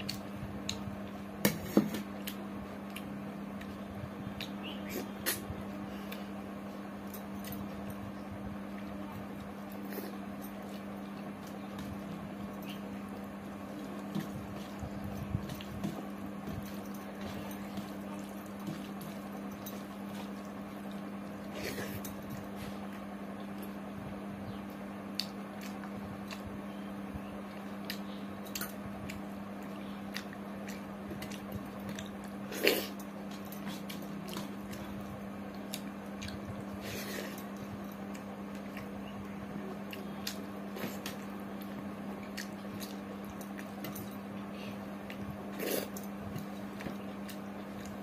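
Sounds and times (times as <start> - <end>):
steady low hum: 0.0 - 48.0
chewing: 27.5 - 39.0, 39.7 - 48.0.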